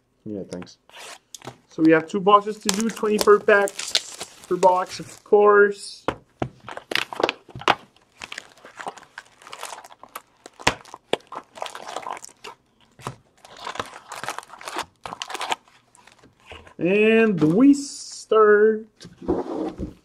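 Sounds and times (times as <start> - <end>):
foil packs crinkling: 2.3 - 5.4, 6.6 - 16.5.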